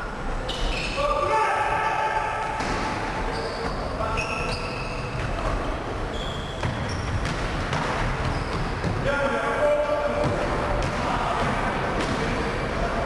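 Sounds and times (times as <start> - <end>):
shoes squeaking on floor: 0.4 - 1.1, 3.1 - 9.1
basketball bouncing on floor: 6.6 - 9.0.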